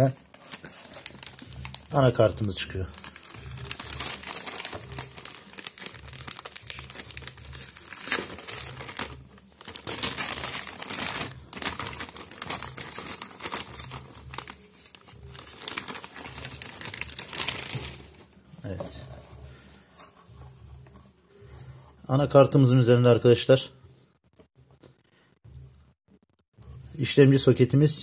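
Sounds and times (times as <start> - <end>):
plastic bag crinkling: 0.0 - 18.3.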